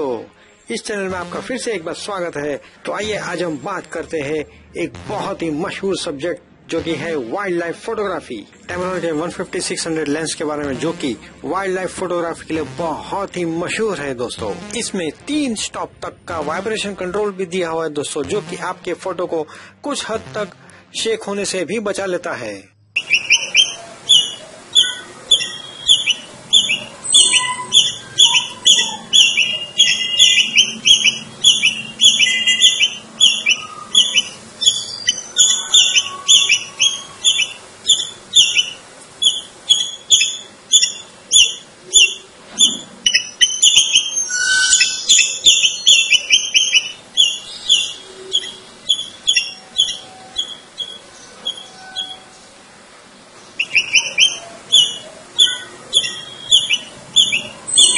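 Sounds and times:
squirrel chirping: 23.0s - 52.5s, 53.5s - 57.9s.

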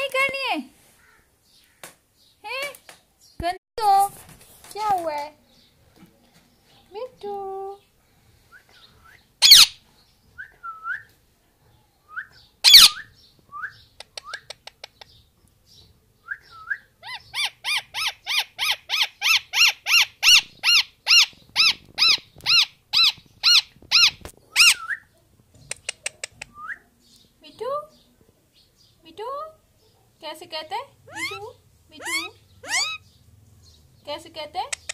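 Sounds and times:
parakeet rapid repeated calls: 9.4s - 9.8s, 12.6s - 13.0s, 17.1s - 24.8s, 31.1s - 33.0s
parakeet shrill screeches: 9.4s - 9.8s, 12.6s - 13.1s, 17.1s - 24.9s, 31.1s - 33.0s
parakeet soft chirps: 17.0s - 24.9s, 31.1s - 33.1s.

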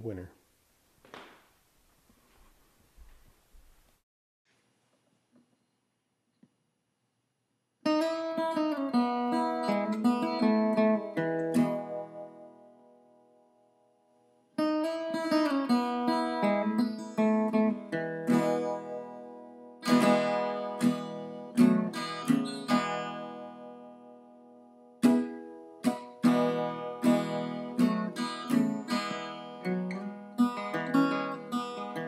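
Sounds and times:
acoustic guitar strumming: 7.9s - 13.5s, 14.6s - 32.0s.

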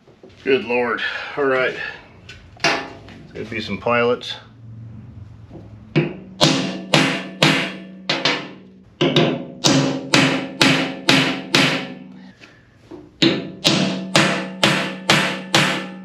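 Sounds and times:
hammer tapping punch on steel: 13.2s - 16.0s.

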